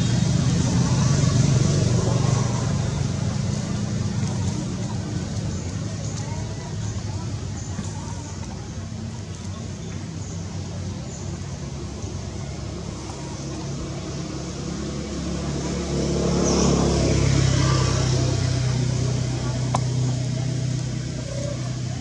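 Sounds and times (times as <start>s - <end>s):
vehicle engine driving past: 0.0s - 7.2s, 11.4s - 22.0s.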